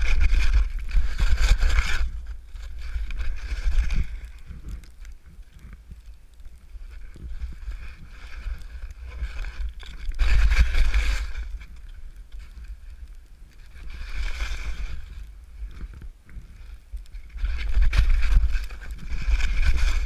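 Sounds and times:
wind buffeting microphone: 0.0 - 20.0
ski turns swishing: 7.2 - 11.8, 13.6 - 15.9, 16.6 - 20.0
skis hissing through snow: 10.2 - 11.7, 13.6 - 15.3.

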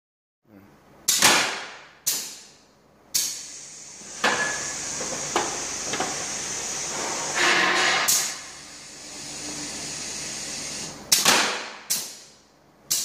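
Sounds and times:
pneumatic valve clacks: 1.1 - 2.5, 3.1 - 12.3
steady air hiss: 2.0 - 11.2.

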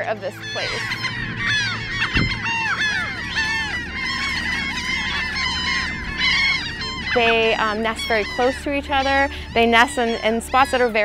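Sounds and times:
gull colony calling: 0.0 - 11.0
low thump: 2.1 - 2.4.

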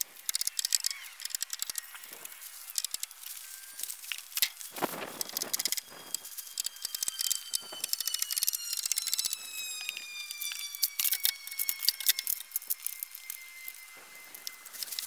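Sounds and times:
plastic wrap crackling and rustling: 0.0 - 15.0
faint high gliding tone: 3.2 - 15.0.

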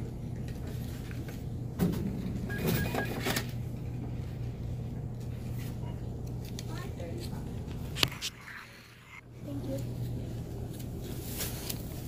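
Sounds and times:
steady low hum: 0.0 - 12.0
rustling: 9.8 - 12.0.

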